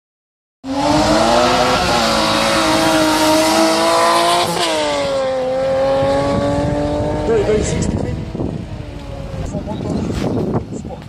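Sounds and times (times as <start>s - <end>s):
car engine accelerating hard: 0.6s - 10.3s.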